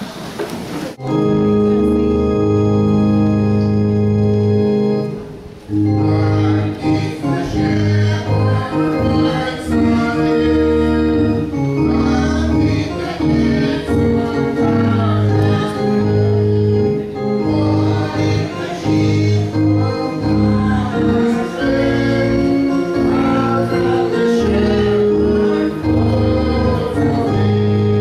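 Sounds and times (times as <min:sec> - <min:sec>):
organ accompaniment: 0:00.9 - 0:28.0
group singing a hymn: 0:05.7 - 0:28.0.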